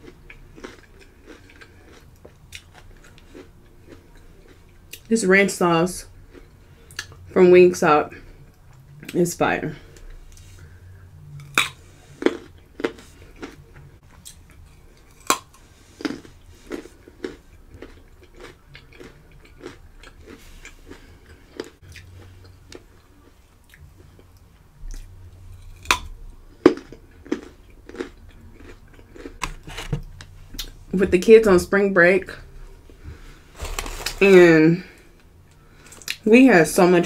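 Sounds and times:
chewing crunchy carrot: 0.0s - 5.1s, 10.0s - 30.8s.

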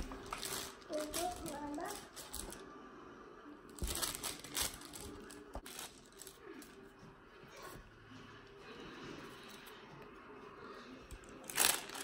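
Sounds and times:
parchment paper rustling: 0.0s - 2.7s, 3.7s - 6.9s, 11.1s - 12.0s.

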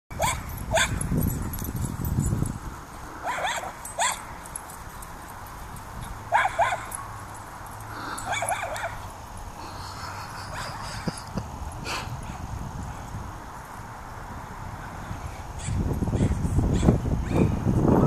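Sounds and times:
dogs yipping and barking: 0.2s - 2.3s, 3.0s - 13.1s, 15.6s - 17.5s.

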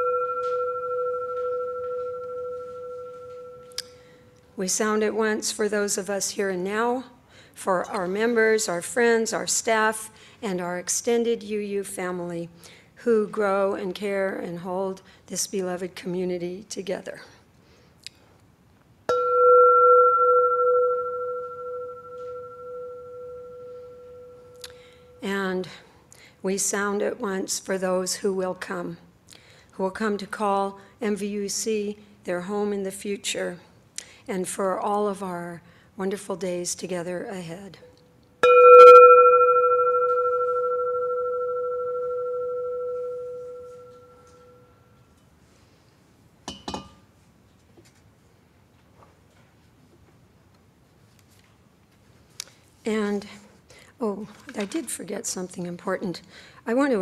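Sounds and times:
singing bowl ringing: 0.0s - 4.1s, 19.1s - 25.2s, 38.4s - 44.9s.

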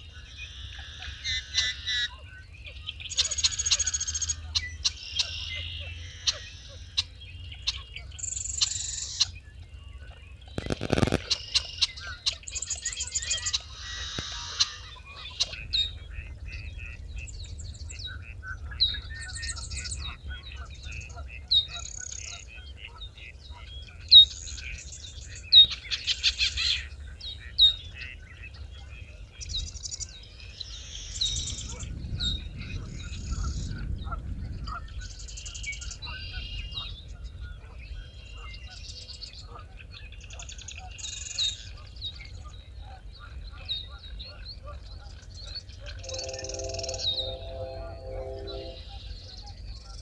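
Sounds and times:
chorus of bird songs and calls: 0.0s - 50.0s
low steady rumble: 8.9s - 21.7s, 45.9s - 49.1s
high rapid trilled birdsong: 45.3s - 49.2s.

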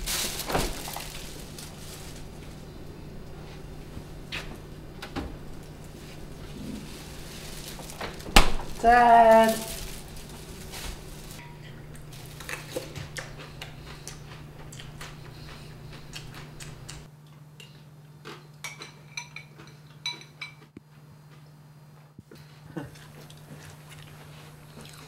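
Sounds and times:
low steady hum: 0.0s - 25.0s
spoon clinking against bowl: 18.6s - 20.6s.

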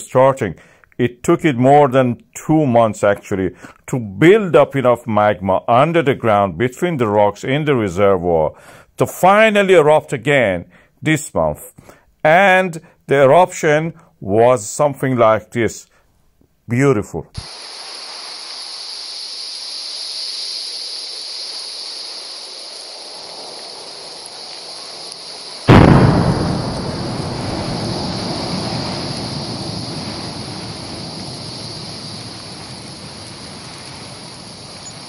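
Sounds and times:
steady hiss: 17.1s - 35.0s
loud boom and rumble: 25.7s - 35.0s.

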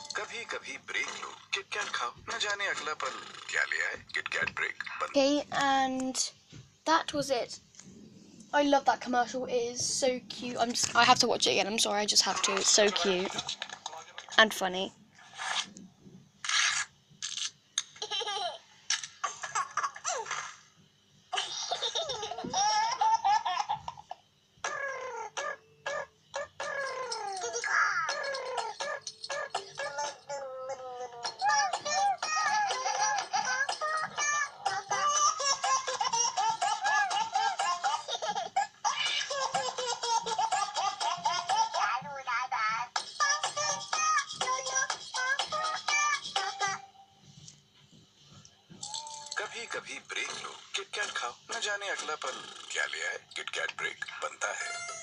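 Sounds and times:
babies laughing and babbling: 21.3s - 46.8s.

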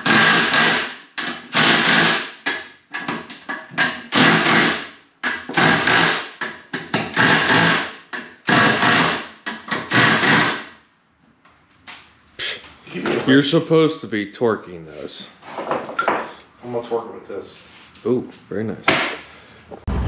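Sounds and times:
impact wrench running down bolts: 0.0s - 2.4s, 4.2s - 6.4s.

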